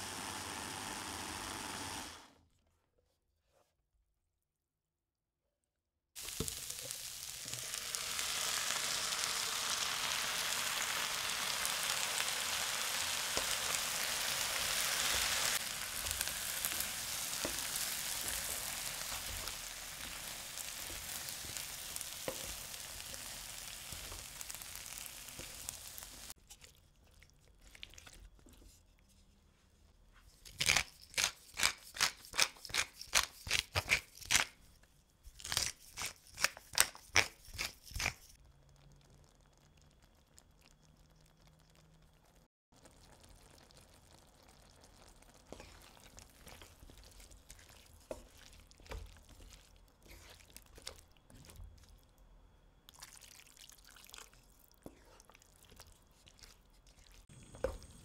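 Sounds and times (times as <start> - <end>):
food sizzling in hot oil: 0.0 - 2.3, 6.2 - 26.4.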